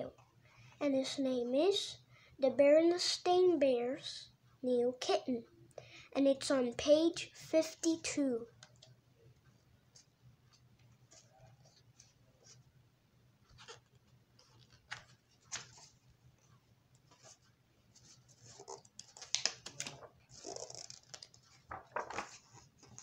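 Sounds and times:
book pages turning: 13.5s - 16.0s, 17.0s - 23.0s.

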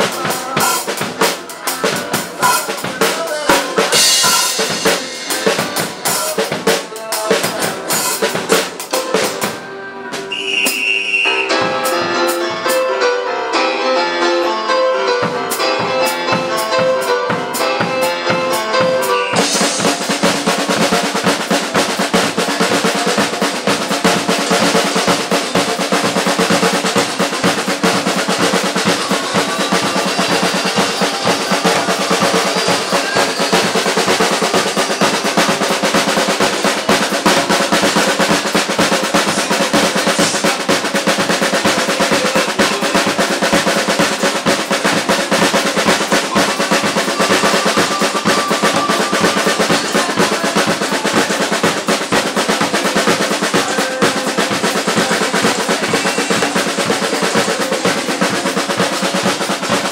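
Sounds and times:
snare drum strokes: 0.0s - 9.6s, 10.2s - 12.8s, 15.6s - 59.9s
hi-hat and cymbal hits: 2.4s - 9.1s, 19.0s - 59.9s.

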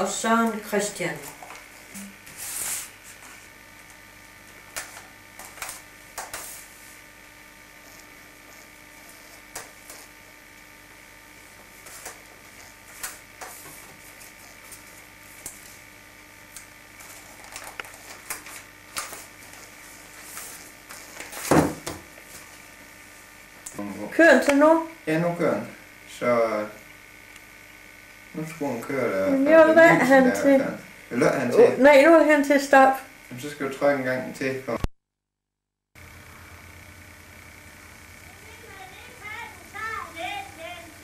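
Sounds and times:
wrapping paper crinkling: 17.0s - 21.5s
package thump: 21.4s - 22.1s.

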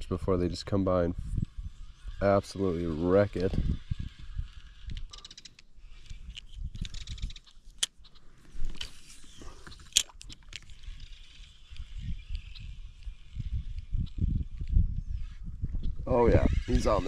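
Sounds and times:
wind rumble on microphone: 0.0s - 5.2s, 5.8s - 7.5s, 10.5s - 17.0s
reel clicks: 3.2s - 14.8s.

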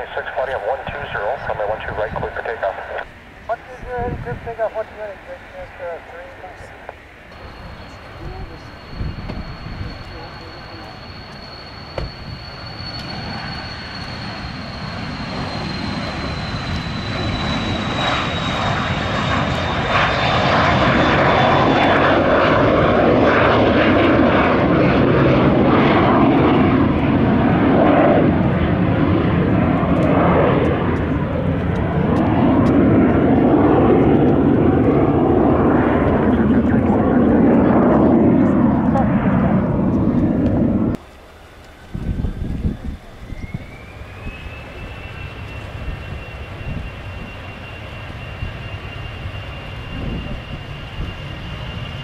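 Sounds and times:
jet taking off: 0.0s - 52.0s.

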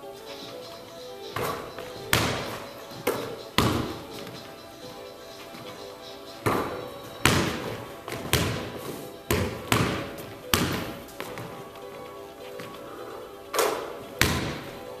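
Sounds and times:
faint music: 0.0s - 15.0s
basketball bouncing on wooden floor: 1.3s - 4.5s, 6.4s - 11.7s, 14.1s - 14.8s.

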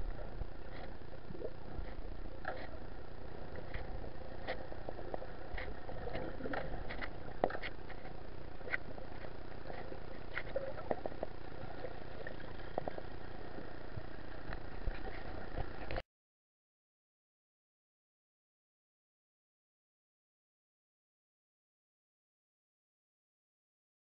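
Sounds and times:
muffled underwater rumble: 0.0s - 16.0s
underwater clicks and crackles: 0.0s - 16.0s.

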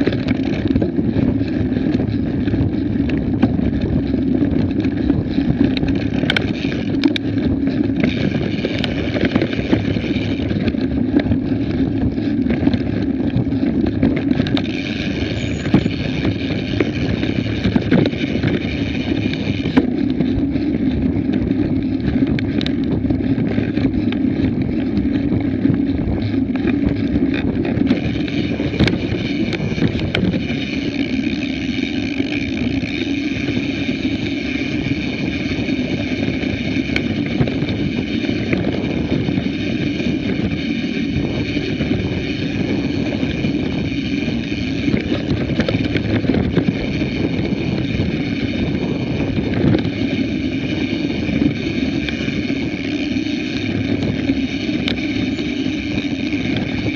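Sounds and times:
small clicks from roots and stones: 0.0s - 38.7s
bike tyres and frame rattling: 0.0s - 56.9s
high whir: 0.0s - 56.9s
wind on microphone: 0.0s - 56.9s.

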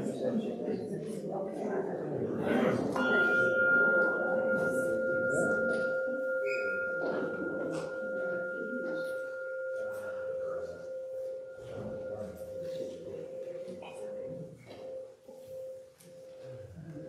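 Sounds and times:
bell ringing: 2.9s - 16.2s.

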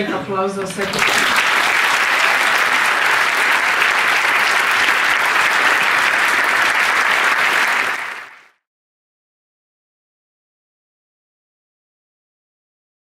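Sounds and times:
audience applauding: 0.6s - 8.6s.

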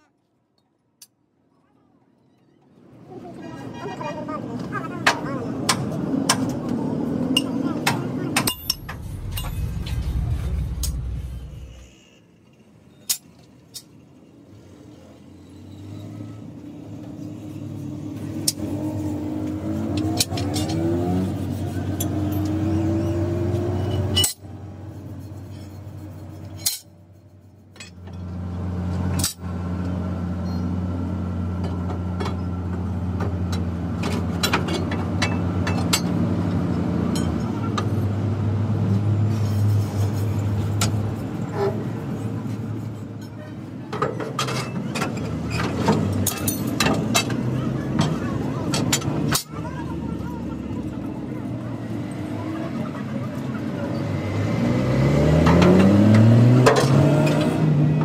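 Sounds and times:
hand tools clinking on metal: 46.1s - 47.4s.

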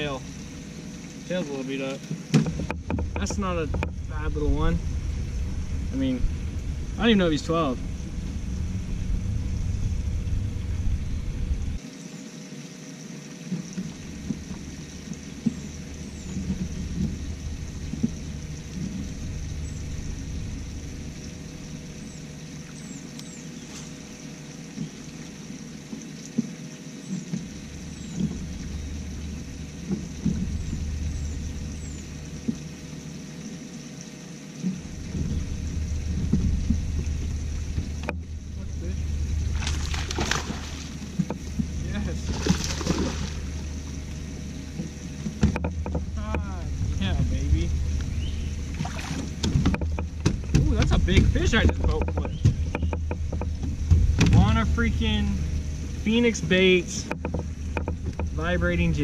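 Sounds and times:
light knocks: 2.0s - 4.0s
low rumble: 2.6s - 11.8s, 13.9s - 25.3s, 27.4s - 33.6s, 34.6s - 59.0s.

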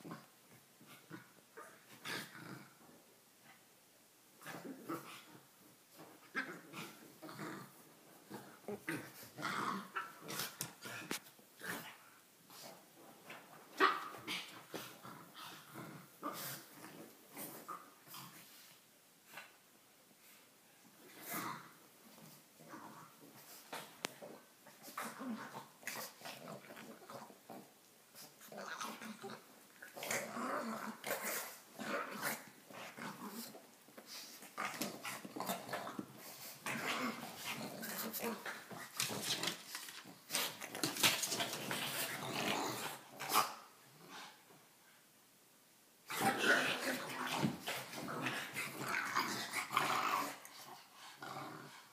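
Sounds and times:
dogs snuffling grunting and growling: 14.2s - 19.6s, 21.0s - 44.4s.

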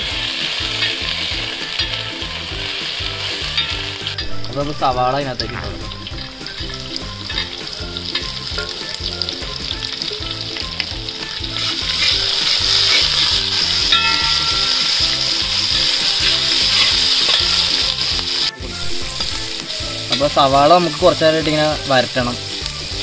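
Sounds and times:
onions sizzling in hot oil: 0.0s - 23.0s
metal spatula scraping a pan: 0.3s - 4.4s, 11.3s - 18.1s.

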